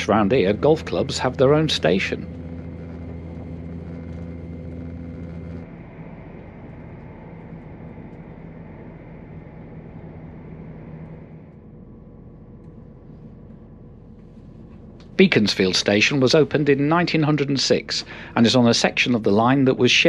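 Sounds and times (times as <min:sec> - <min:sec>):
train running noise: 0:00.0 - 0:11.6
train diesel engine hum: 0:00.0 - 0:20.0.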